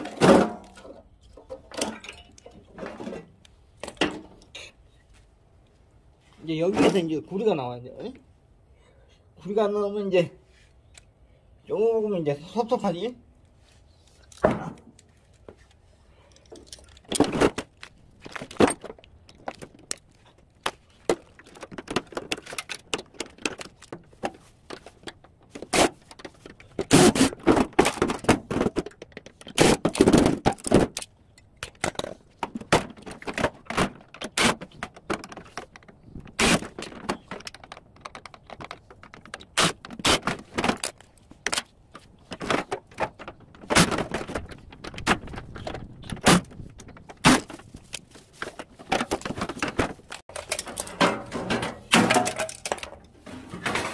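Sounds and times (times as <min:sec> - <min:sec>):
metal parts clinking and scraping: 0:16.2 - 0:20.4, 0:45.5 - 0:53.9.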